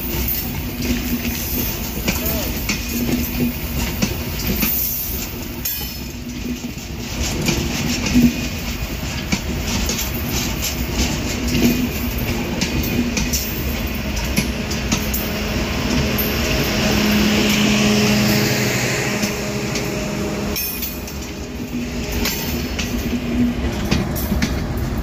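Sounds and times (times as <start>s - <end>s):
train coaches rumbling past: 0.0s - 25.0s
wheels clattering over rail joints: 0.0s - 25.0s.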